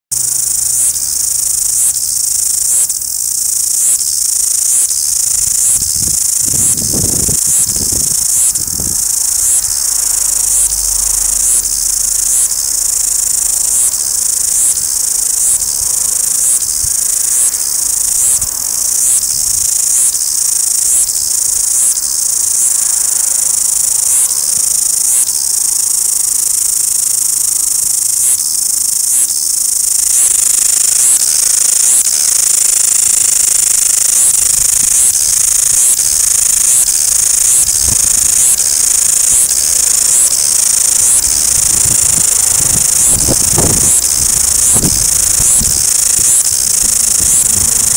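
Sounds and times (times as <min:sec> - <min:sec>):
cicadas singing: 0:00.1 - 0:47.9.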